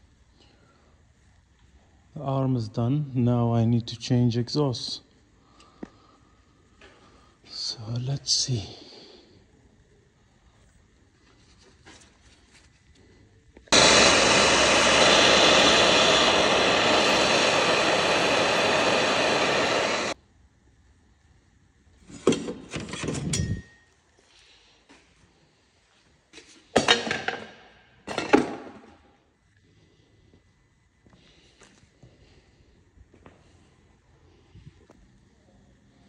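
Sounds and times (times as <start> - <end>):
power tool running: 13.7 - 20.2.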